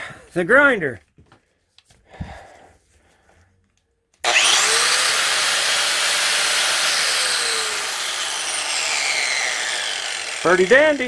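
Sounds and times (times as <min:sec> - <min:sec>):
angle grinder running: 0:04.2 - 0:11.0.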